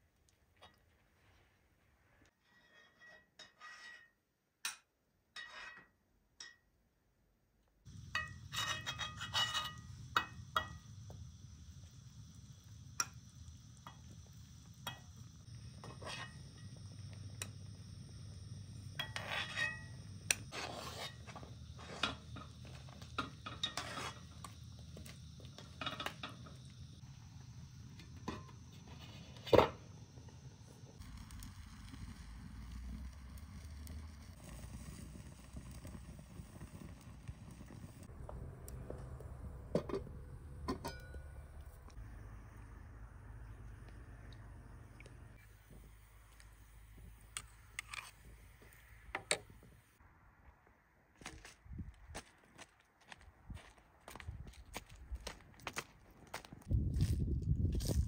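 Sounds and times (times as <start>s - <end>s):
metal spoon scraping metal pot: 2.4s - 4.2s, 8.1s - 10.8s, 15.7s - 16.7s, 19.0s - 24.6s, 47.4s - 48.3s
steady low rumble: 30.0s - 47.4s.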